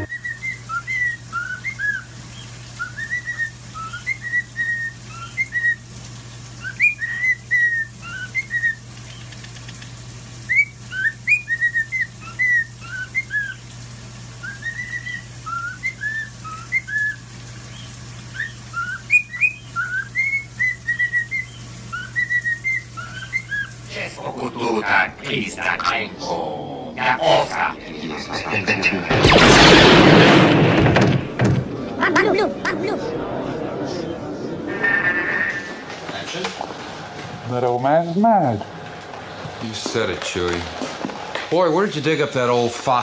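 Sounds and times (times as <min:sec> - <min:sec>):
cockatiel whistling: 0:00.0 - 0:05.8, 0:06.6 - 0:08.8, 0:10.5 - 0:13.6, 0:14.4 - 0:23.8
shower running: 0:00.0 - 0:27.8.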